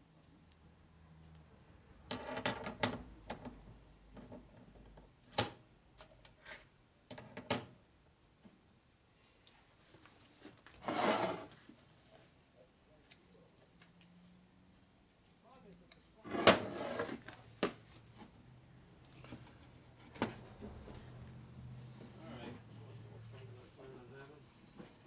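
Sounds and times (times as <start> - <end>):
short scraping rustle: 10.8 - 11.6.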